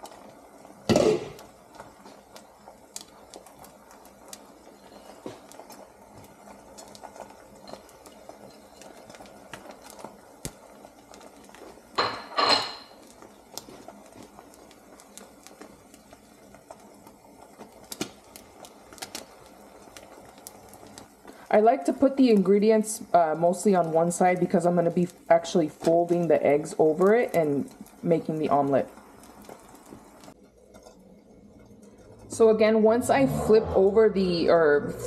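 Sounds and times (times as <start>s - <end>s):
eggs sizzling in a frying pan: 0.0s - 35.0s
kitchenware clattering: 12.0s - 13.0s.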